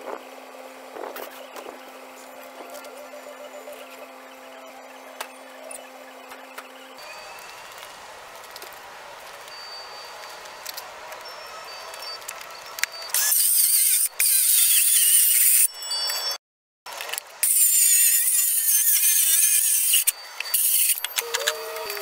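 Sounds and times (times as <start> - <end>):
circular saw cutting plywood: 13.1 - 15.7, 17.4 - 22.0.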